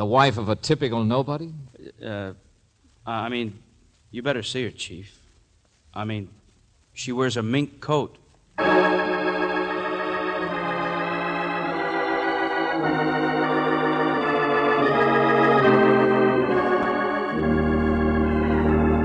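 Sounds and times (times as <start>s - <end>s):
organ chords: 8.6s - 19.0s.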